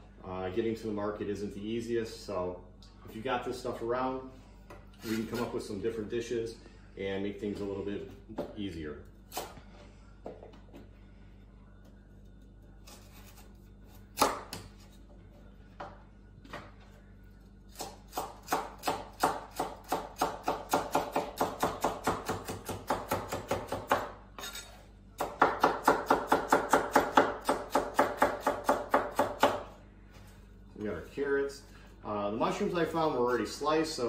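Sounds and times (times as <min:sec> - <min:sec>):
knife chopping carrot on board: 0:17.7 - 0:24.1, 0:25.2 - 0:29.7.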